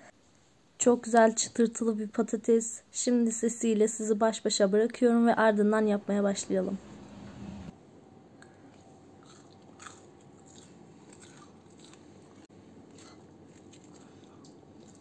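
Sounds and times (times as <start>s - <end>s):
fries crunching: 9.2s - 15.0s.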